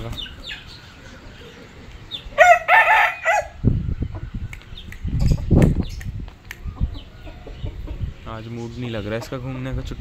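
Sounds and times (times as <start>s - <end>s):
rooster crowing: 2.4s - 3.6s
finger snaps: 4.5s - 6.8s.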